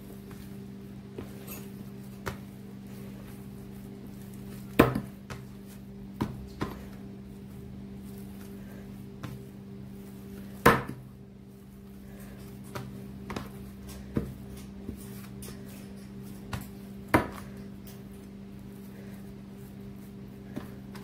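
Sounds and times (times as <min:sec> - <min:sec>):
dough kneaded by hand: 0:00.0 - 0:21.0
steady low hum: 0:00.0 - 0:21.0
dough slaps: 0:04.5 - 0:07.0, 0:10.4 - 0:11.1, 0:12.6 - 0:15.4, 0:16.4 - 0:17.6.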